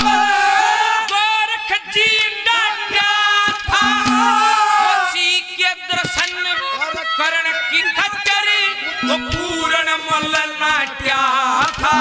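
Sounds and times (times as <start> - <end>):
instrumental accompaniment: 0.0 - 1.4, 3.0 - 12.0
man singing long wavering notes: 9.0 - 12.0.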